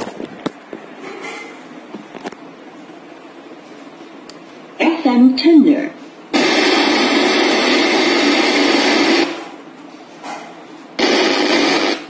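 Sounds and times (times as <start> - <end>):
radio static hiss: 6.3 - 9.6, 11.0 - 12.0.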